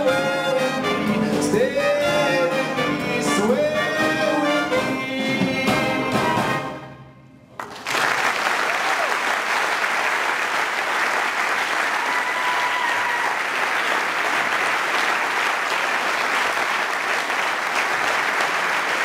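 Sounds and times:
audience applauding: 7.6 - 19.0.

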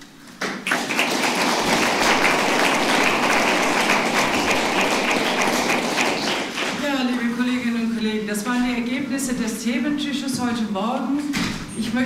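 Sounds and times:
audience applauding: 0.6 - 6.9.

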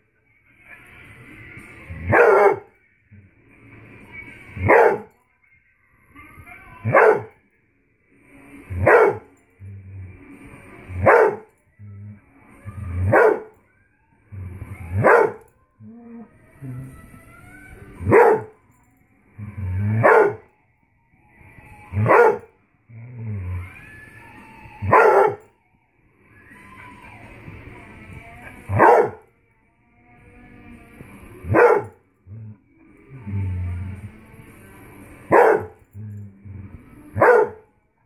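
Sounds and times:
dog barking: 2.1 - 2.7, 4.6 - 5.1, 6.8 - 7.3, 8.8 - 9.3, 11.0 - 11.5, 13.1 - 13.5, 15.0 - 15.5, 18.1 - 18.5, 20.0 - 20.4, 22.0 - 22.5, 24.9 - 25.4, 28.7 - 29.2, 31.5 - 32.0, 35.3 - 35.8, 37.2 - 37.6.

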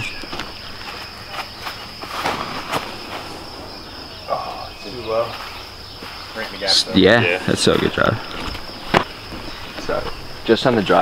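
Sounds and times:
insects chirring: 0.0 - 11.0
footsteps scuffing: 5.2 - 6.6.

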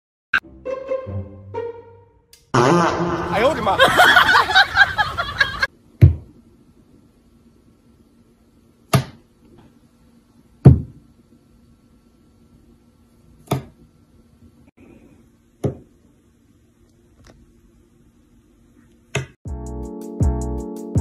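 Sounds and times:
fruit knocking on countertop: 10.6 - 11.0.

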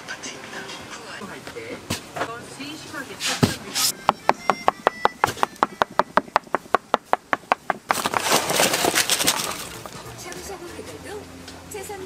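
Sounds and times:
knife chopping on wooden board: 3.4 - 8.1.

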